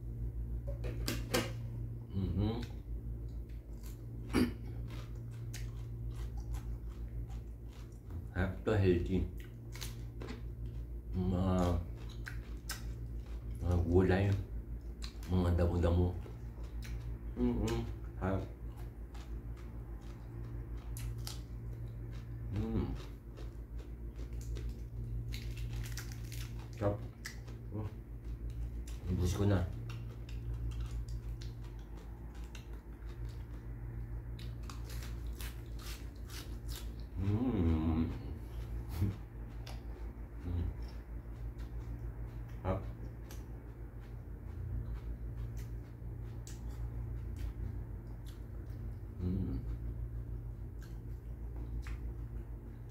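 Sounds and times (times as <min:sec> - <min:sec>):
low hum: 0:00.0 - 0:52.9
person chewing: 0:00.6 - 0:52.9
crunching raw cucumber: 0:02.4 - 0:37.4.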